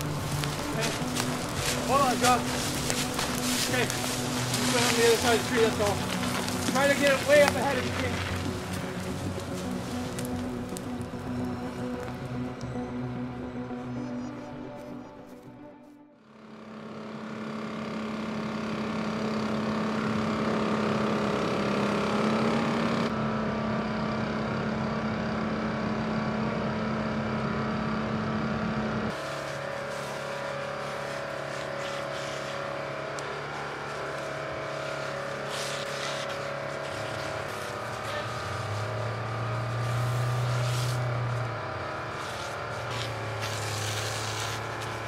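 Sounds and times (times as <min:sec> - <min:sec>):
sharp crackles: 0:00.0 - 0:12.7, 0:29.1 - 0:45.0
deep hum: 0:00.0 - 0:16.8
fire engine motor running: 0:00.0 - 0:45.0
low engine drone: 0:00.0 - 0:45.0.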